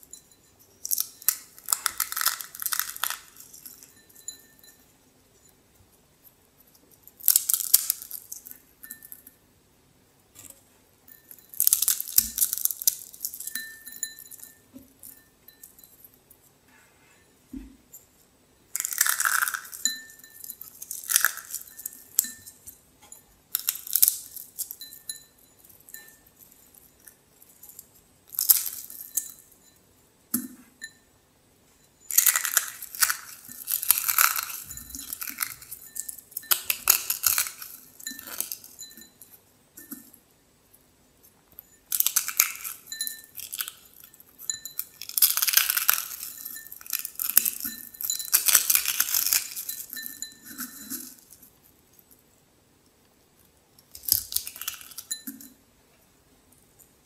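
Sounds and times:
dry noodles crackling: 0.8 - 3.9, 32.1 - 38.7, 41.9 - 51.4, 53.9 - 55.2.

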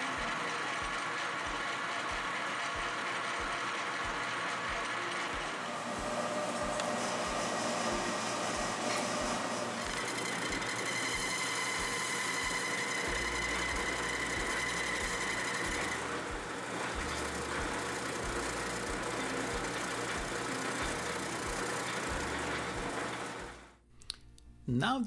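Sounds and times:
metal lathe running: 0.0 - 23.7
high tone from cutting tool: 4.0 - 23.0.

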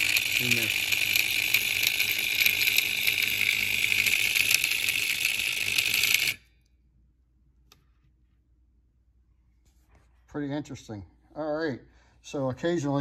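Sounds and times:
alarm bell buzzing rattle: 0.0 - 6.5.

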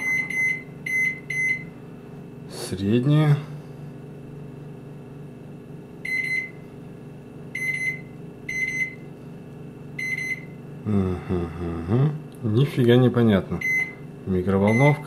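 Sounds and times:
microwave button beeps: 0.0 - 1.7, 6.0 - 6.6, 7.5 - 9.1, 10.0 - 10.6, 13.6 - 14.0, 14.6 - 15.0
steady low hum: 0.0 - 15.0.

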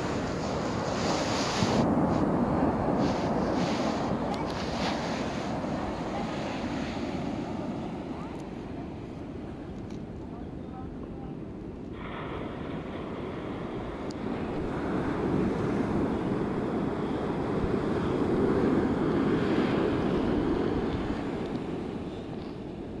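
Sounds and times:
surf on a beach: 0.0 - 23.0
wind on microphone: 0.0 - 23.0.

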